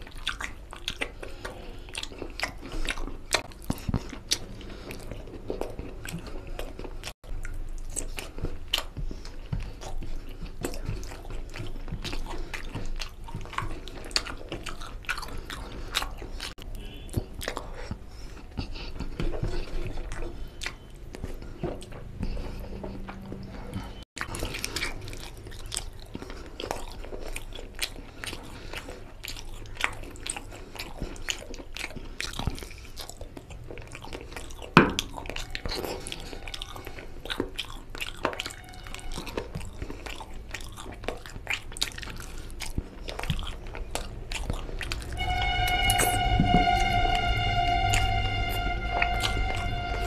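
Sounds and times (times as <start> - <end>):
person chewing and biting food: 0.0 - 45.2
music: 38.4 - 39.4, 45.1 - 50.0.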